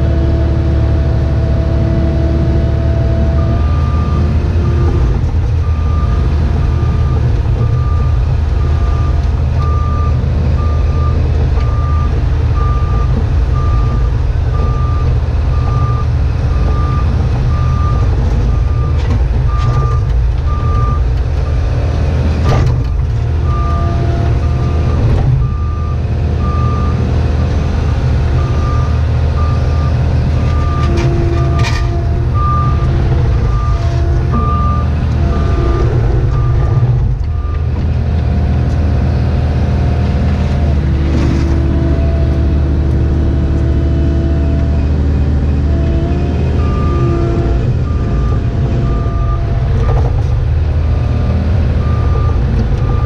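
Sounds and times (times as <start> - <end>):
excavator engine and hydraulics: 0.0 - 53.0
backup alarm beeping: 28.4 - 37.7.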